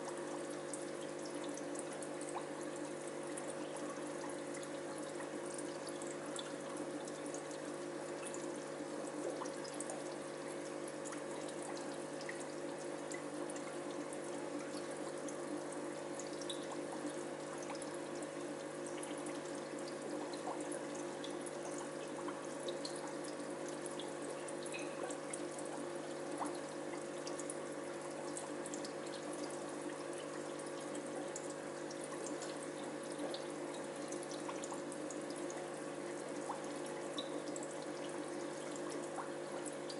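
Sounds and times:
water trickling and bubbling: 0.0s - 39.9s.

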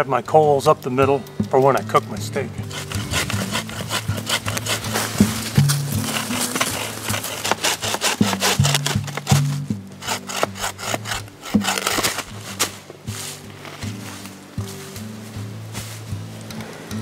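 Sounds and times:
background music: 0.0s - 17.0s
saw rasping through wood: 2.6s - 12.8s.

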